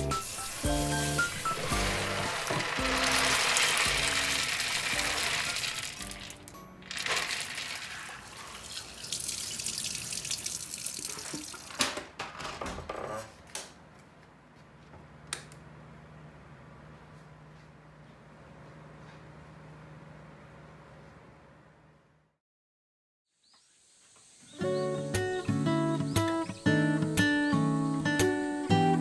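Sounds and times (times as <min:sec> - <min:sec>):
tap water running into bowl: 0:00.1 - 0:11.8.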